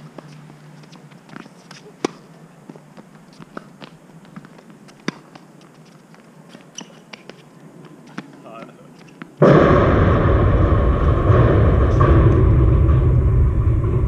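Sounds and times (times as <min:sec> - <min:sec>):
racket hitting tennis ball: 0:00.1 - 0:05.9, 0:08.0 - 0:09.4
light shoe taps: 0:00.1 - 0:09.4.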